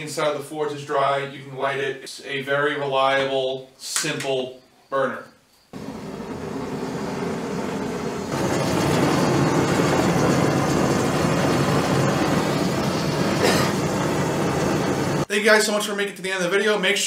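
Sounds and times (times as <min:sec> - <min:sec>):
propane burner flame roaring: 0:05.7 - 0:15.3.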